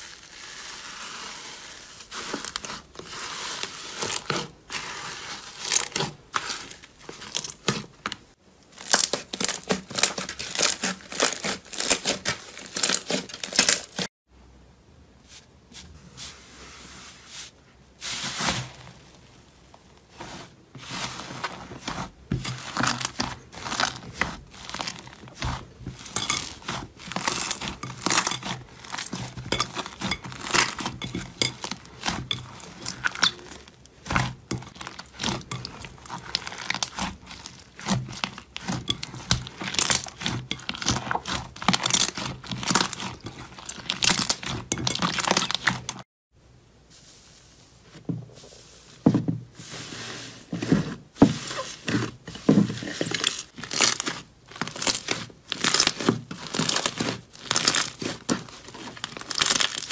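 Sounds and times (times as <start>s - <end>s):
slime tearing: 8.8s - 14.0s, 22.4s - 45.8s, 53.0s - 59.9s
slime crackling and popping: 8.8s - 14.1s, 22.5s - 46.0s, 53.1s - 59.9s.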